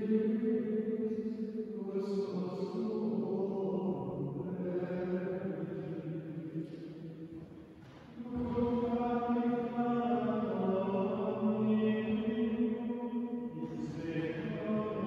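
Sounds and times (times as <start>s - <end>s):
male choir chanting: 0.0s - 6.8s, 8.2s - 15.0s.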